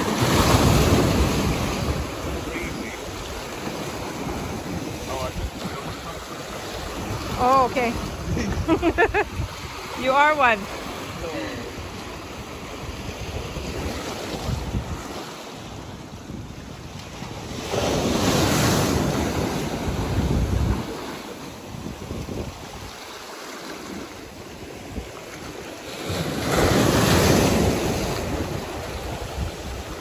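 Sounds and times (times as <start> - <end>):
wind buffeting microphone: 0.0 - 23.0, 23.9 - 30.0
ocean surf breaking: 0.0 - 30.0.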